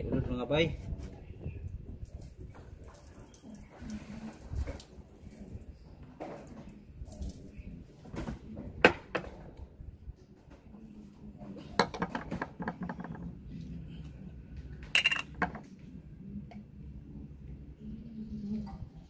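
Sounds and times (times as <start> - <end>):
oyster shells clattering on steel bowl: 15.0 - 15.6.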